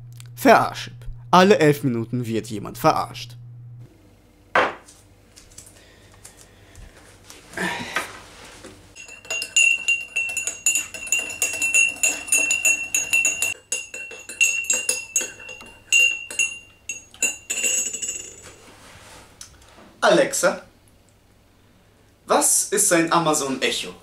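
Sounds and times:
teaspoon clinking in a mug: 9.0 - 18.6.

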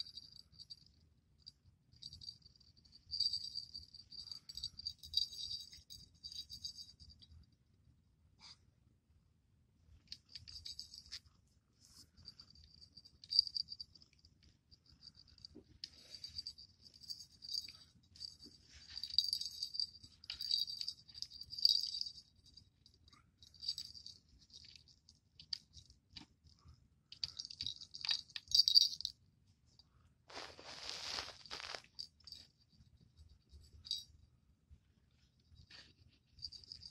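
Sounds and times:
jingle bell jingling: 0.0 - 0.9, 2.0 - 7.2, 10.3 - 11.2, 11.9 - 14.1, 14.8 - 22.7, 23.4 - 24.9, 27.2 - 29.2, 31.3 - 34.1, 35.7 - 36.9
rustling: 14.9 - 22.2, 30.3 - 34.1.

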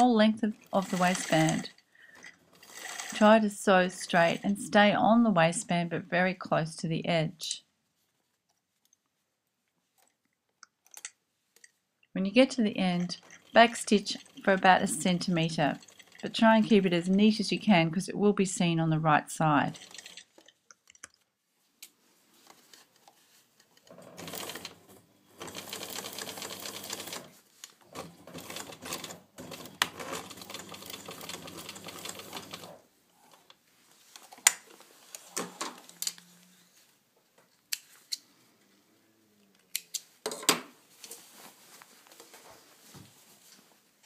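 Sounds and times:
sewing machine stitching: 0.7 - 1.8, 2.5 - 3.4, 12.9 - 16.8, 19.6 - 20.5, 23.9 - 33.4.

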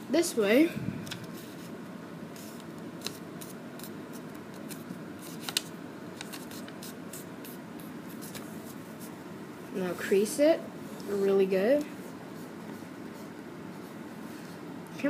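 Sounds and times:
paper rustling and crackling: 2.4 - 9.1.

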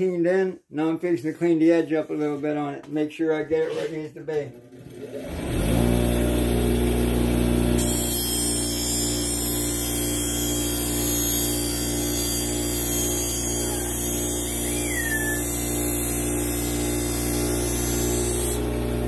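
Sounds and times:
bench grinder motor humming: 4.7 - 19.0
blade grinding on wheel: 7.8 - 18.7.

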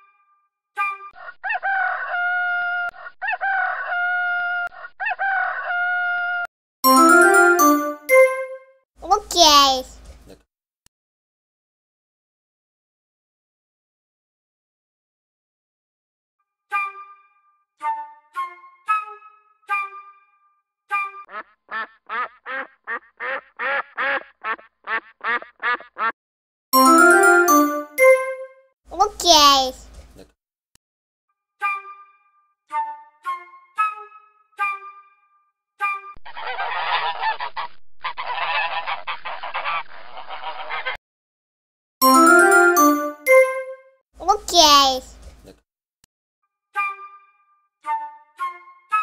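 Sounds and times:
rooster crowing: 1.2 - 6.4
duck quacking: 21.3 - 26.2, 36.3 - 41.0.

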